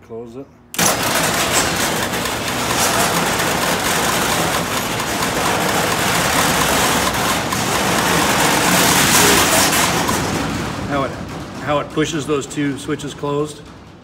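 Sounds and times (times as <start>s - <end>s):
garage door motor running: 0.7s - 14.0s.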